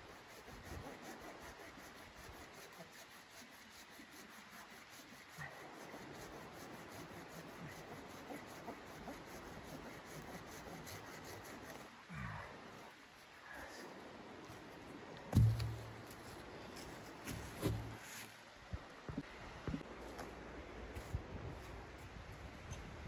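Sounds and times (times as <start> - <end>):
hand saw cutting wood: 0.0 - 11.9
knock: 15.3 - 15.8.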